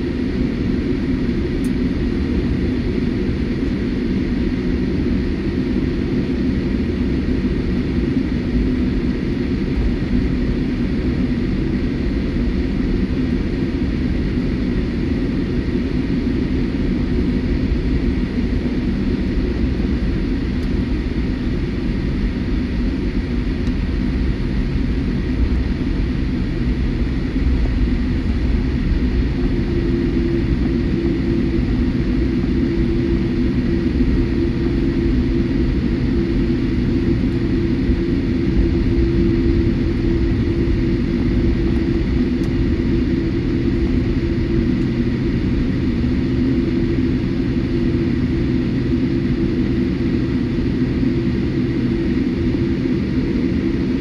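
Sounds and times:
airliner cabin engine rumble: 0:00.0 - 0:54.0
steady cabin hum: 0:16.3 - 0:54.0.

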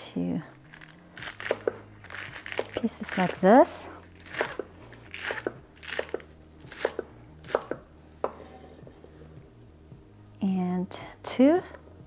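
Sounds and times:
knife chopping on wooden board: 0:04.2 - 0:08.5.

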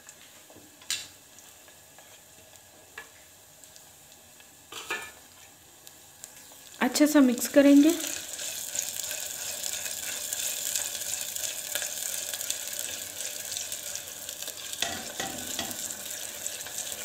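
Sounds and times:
onions sizzling in oil: 0:00.0 - 0:17.0
spatula stirring and scraping: 0:01.4 - 0:03.3, 0:08.0 - 0:17.0.

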